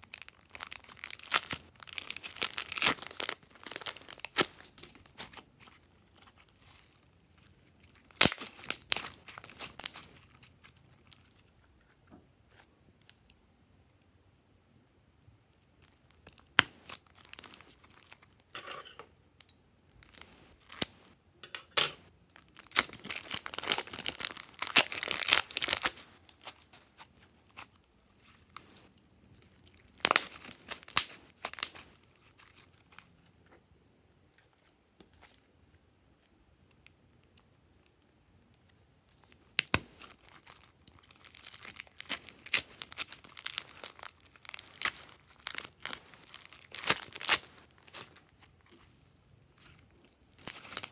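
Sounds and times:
slime tearing crackly: 0:00.0 - 0:11.4, 0:22.4 - 0:28.4, 0:29.4 - 0:33.0, 0:39.6 - 0:48.8, 0:49.6 - 0:50.9
plastic crinkling: 0:00.0 - 0:12.6, 0:15.8 - 0:18.5, 0:22.3 - 0:33.3, 0:39.1 - 0:50.9.

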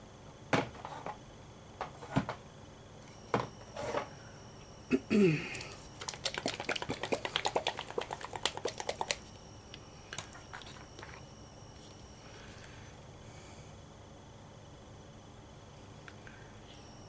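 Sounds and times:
plastic bottle rattling when shaken: 0:06.0 - 0:09.3.

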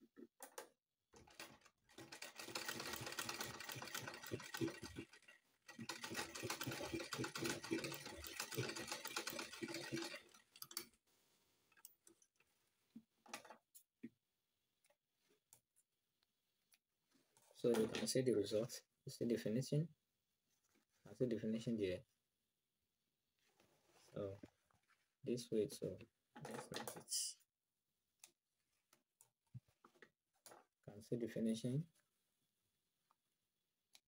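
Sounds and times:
sewing machine stitching: 0:01.1 - 0:11.0.

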